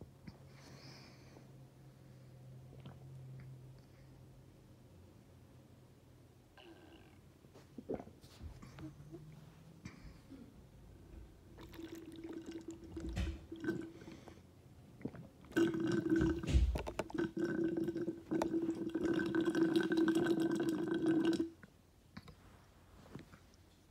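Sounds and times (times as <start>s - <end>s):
water bubbling in a glass container: 11.6s - 13.9s, 15.1s - 21.6s.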